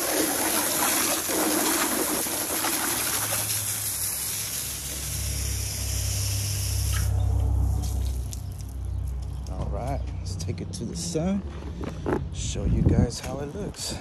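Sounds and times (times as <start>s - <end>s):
hose spraying water on asphalt: 0.0s - 7.1s, 7.8s - 8.8s
low engine rumble: 3.4s - 14.0s.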